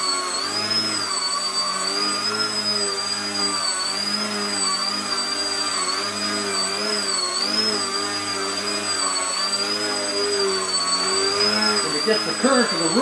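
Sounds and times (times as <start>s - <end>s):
model airplane motor whine: 0.0s - 13.0s.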